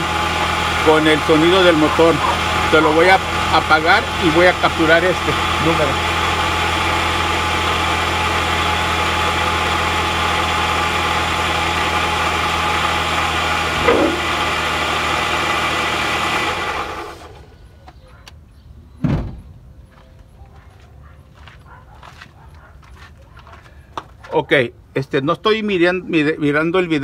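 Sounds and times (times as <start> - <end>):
car engine idling: 0.0 - 17.8
dull thump: 13.8 - 14.4.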